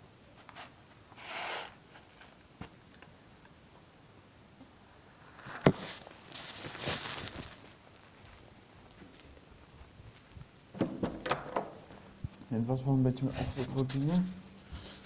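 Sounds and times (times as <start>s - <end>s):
rustling: 5.0s - 15.0s.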